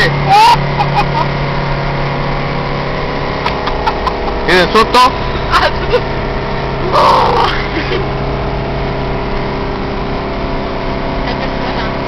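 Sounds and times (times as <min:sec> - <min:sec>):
car engine and road noise: 0:00.0 - 0:12.0
girls laughing: 0:00.3 - 0:01.4, 0:03.4 - 0:04.5, 0:05.4 - 0:06.2.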